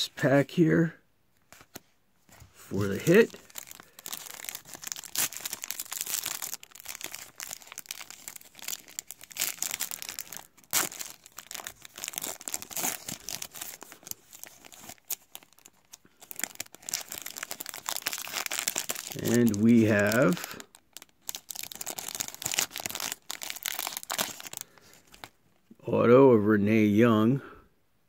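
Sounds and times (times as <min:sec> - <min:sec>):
foil wrapper crinkling: 0:02.7 - 0:25.4.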